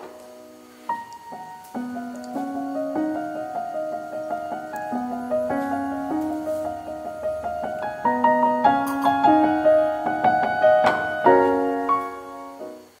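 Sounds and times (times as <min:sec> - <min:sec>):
gentle piano music: 0:00.0 - 0:13.0.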